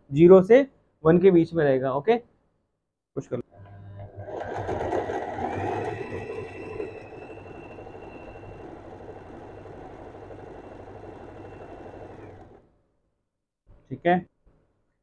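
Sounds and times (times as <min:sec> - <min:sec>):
sewing machine running: 0:04.0 - 0:12.7.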